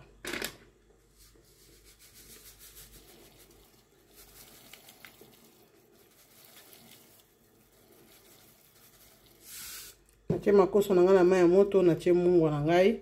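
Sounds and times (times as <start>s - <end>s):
salt pouring into water: 1.6s - 10.0s.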